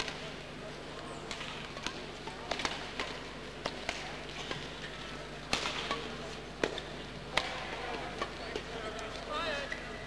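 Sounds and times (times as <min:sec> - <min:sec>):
racket hitting shuttlecock: 0:00.0 - 0:00.3, 0:01.2 - 0:08.7
low steady hum: 0:00.0 - 0:10.0.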